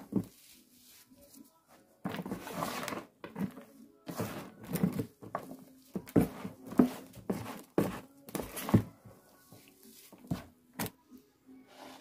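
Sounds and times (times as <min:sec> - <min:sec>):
soil scrapes and soft thuds: 0:00.0 - 0:10.6.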